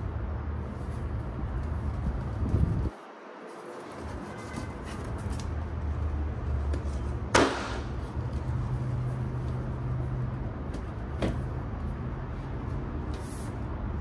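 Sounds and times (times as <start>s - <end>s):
box scraping against cardboard: 3.6s - 5.2s.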